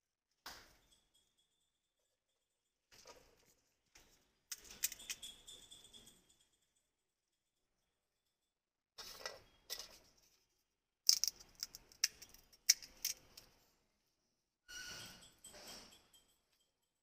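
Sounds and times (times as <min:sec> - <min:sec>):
crisp shells cracking: 0:11.1 - 0:13.2.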